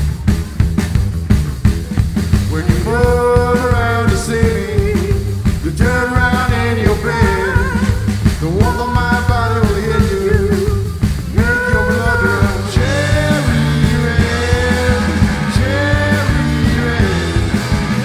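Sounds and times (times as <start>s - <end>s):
rock band playing: 0.0s - 18.0s
man singing: 2.5s - 18.0s.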